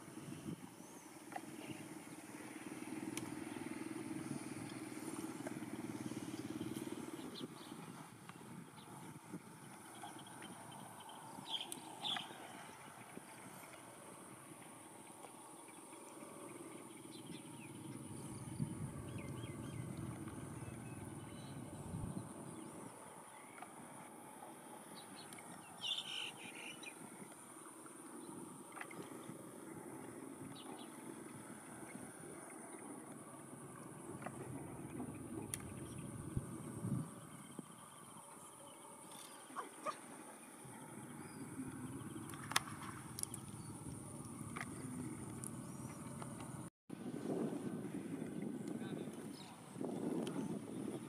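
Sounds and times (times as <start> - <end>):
small engine running: 1.2 - 10.7
birds chirping: 4.8 - 23.8, 24.9 - 27.3, 28.0 - 46.7
faint clicks: 41.7 - 46.5.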